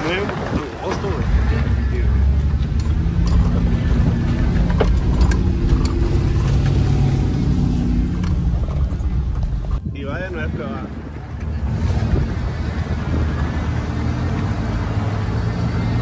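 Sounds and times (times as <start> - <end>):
suv engine running hard: 10.4 - 16.0.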